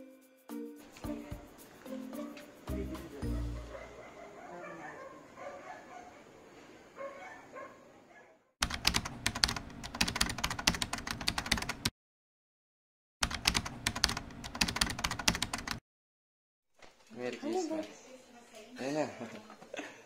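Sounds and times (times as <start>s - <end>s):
keyboard typing clicks: 8.6s - 11.9s, 13.2s - 15.8s.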